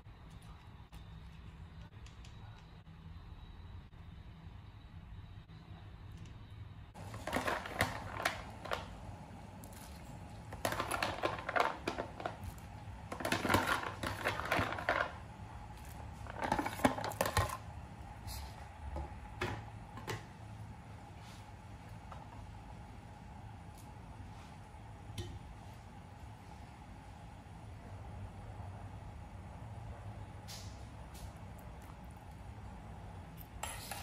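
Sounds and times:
dry pasta rattling into pot: 7.0s - 9.0s, 10.2s - 15.3s, 15.9s - 17.6s.

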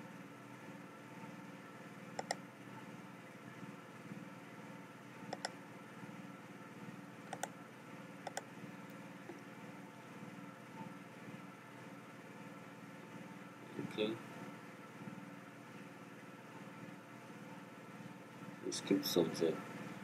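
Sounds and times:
low steady hum: 0.0s - 20.0s
computer mouse clicks: 2.2s - 2.4s, 5.3s - 5.6s, 7.3s - 7.6s, 8.2s - 8.5s.

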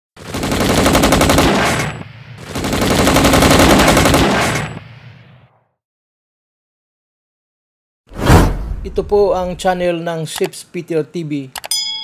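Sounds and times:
automatic gunfire: 0.2s - 4.8s.

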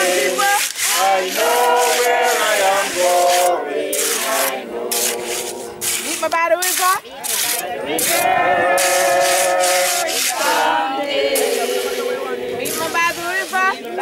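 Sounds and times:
steel trowel scraping cement: 0.0s - 14.0s
voices talking: 4.2s - 14.0s.

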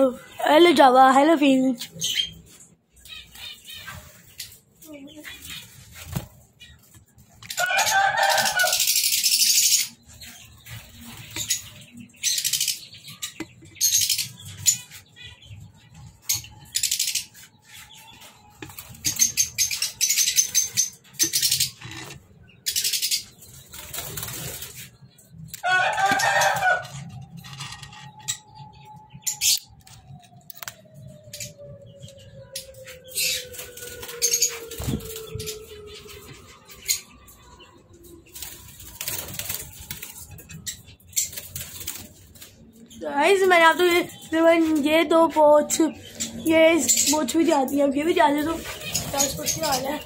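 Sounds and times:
bird calls: 1.9s - 50.0s
wing flapping: 33.6s - 35.6s.

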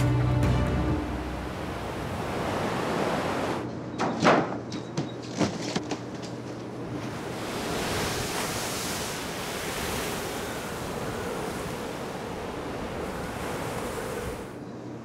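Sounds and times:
wind: 0.0s - 15.0s
breaking waves: 1.2s - 3.6s, 6.8s - 14.6s.

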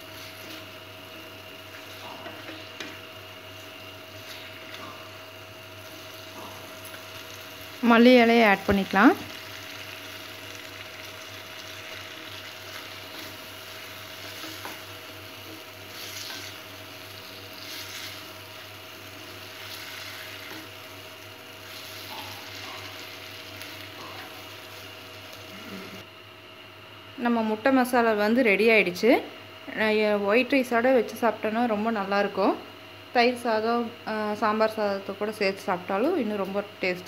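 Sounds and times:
gravy sizzling in pot: 0.0s - 26.0s.

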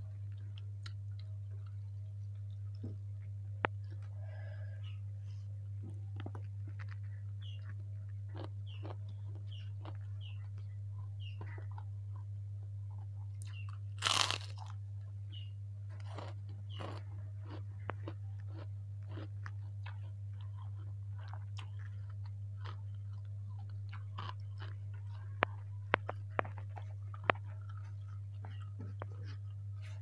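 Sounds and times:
chewing with crackling crunches: 0.0s - 30.0s
steady low hum: 0.0s - 30.0s
loud cracker crunch: 13.4s - 14.8s, 15.9s - 27.8s.

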